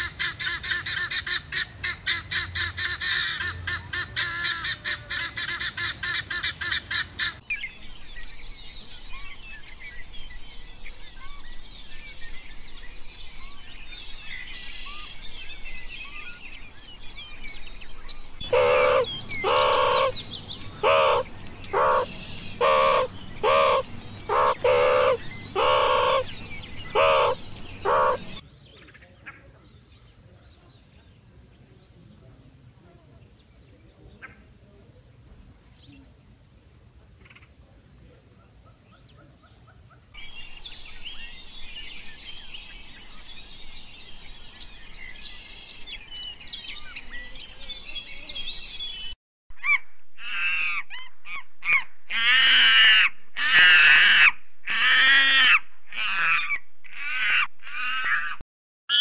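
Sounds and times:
bird chirping: 6.5 - 32.4, 37.4 - 49.2
loud clipped animal calls: 18.4 - 28.4, 49.7 - 59.0
shrill repeated animal calls: 18.4 - 28.4, 49.6 - 59.0.

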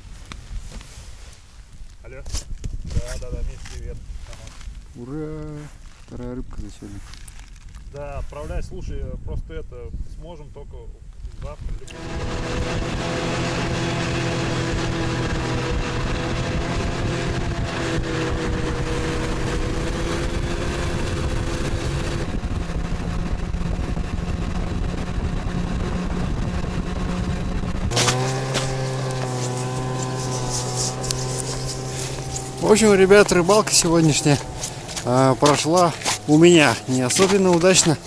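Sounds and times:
steady engine drone: 11.8 - 38.0
snowmobile engine running: 11.9 - 38.0.

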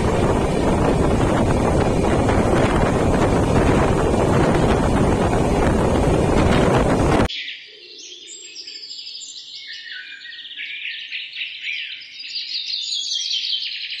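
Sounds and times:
train wind noise: 0.0 - 7.3
bird-like chirps and twitters: 7.3 - 14.0.

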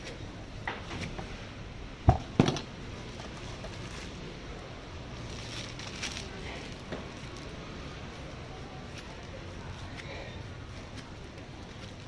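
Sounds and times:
faint plastic bag rustling: 3.0 - 12.0.

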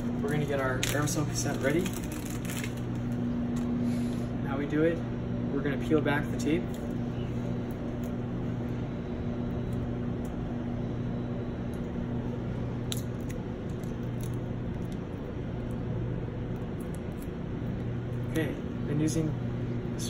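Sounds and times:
air pump humming: 0.0 - 20.0
tape peeling clicks: 12.8 - 15.0.

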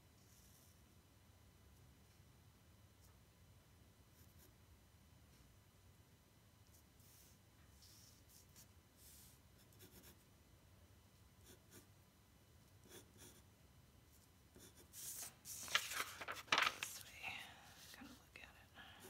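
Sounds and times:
pencil scratching on paper: 7.0 - 10.2, 12.8 - 13.4, 14.5 - 15.6
paper rustling: 15.0 - 17.2.

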